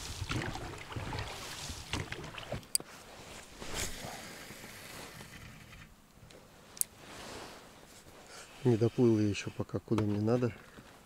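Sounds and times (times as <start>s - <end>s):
oars splashing in water: 0.0s - 2.8s.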